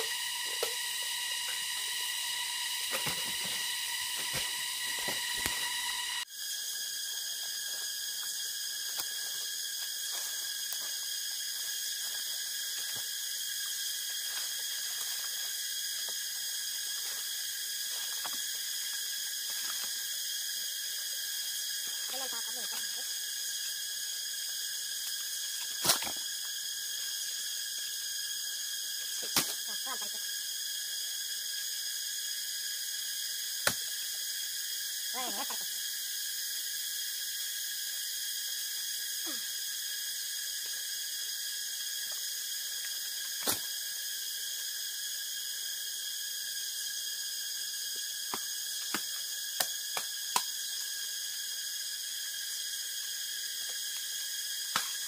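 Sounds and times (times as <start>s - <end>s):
high-pitched drone: 0.0s - 6.3s
bamboo stalks knocking and cracking: 25.6s - 26.4s, 29.2s - 29.7s, 43.2s - 43.8s, 48.3s - 50.5s.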